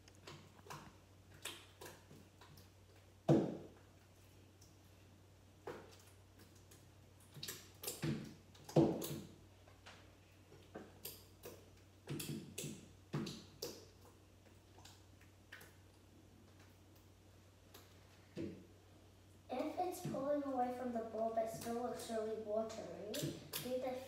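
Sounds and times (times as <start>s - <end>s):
sticky slime squelches: 0.0s - 24.0s.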